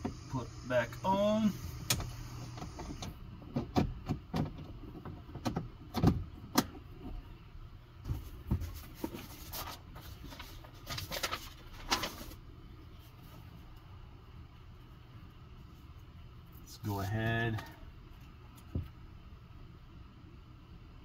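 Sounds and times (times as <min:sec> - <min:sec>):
low steady hum: 0:00.0 - 0:21.0
scraping and rustling: 0:08.1 - 0:12.4.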